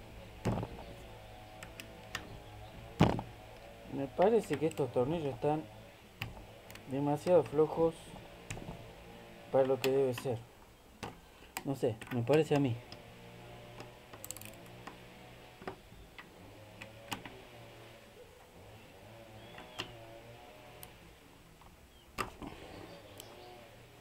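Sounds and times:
socket wrench clicking on bolts: 13.8s - 15.0s.

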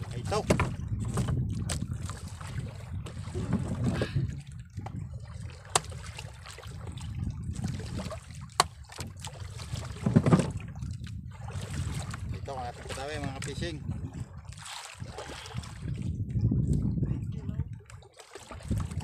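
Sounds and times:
wind and water rumble: 0.0s - 19.0s
wooden club knocking fish: 0.2s - 2.2s, 5.6s - 6.3s, 8.0s - 10.6s.

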